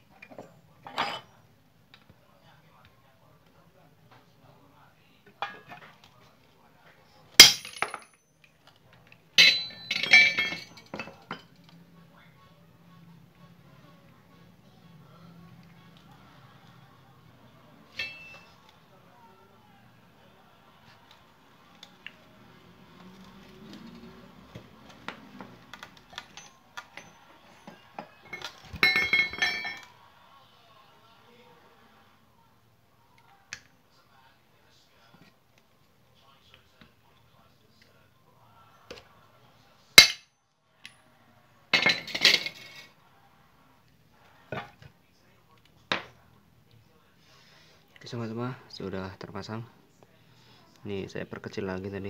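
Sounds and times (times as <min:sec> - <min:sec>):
hammer striking metal: 0:09.4 - 0:10.6, 0:40.0 - 0:40.3
metal bolts clinking on tiles: 0:09.4 - 0:11.7, 0:17.9 - 0:18.5, 0:25.7 - 0:29.9.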